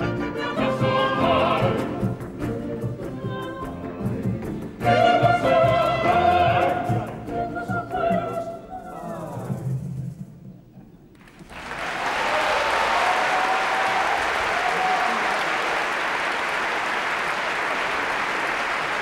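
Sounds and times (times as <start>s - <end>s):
early-music ensemble playing: 0.0s - 8.4s
choir singing: 0.0s - 9.5s.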